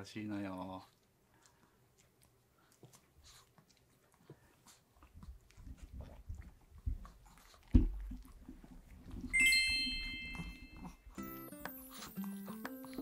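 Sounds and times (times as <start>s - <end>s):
sparkle chime sound effect: 9.3s - 12.2s.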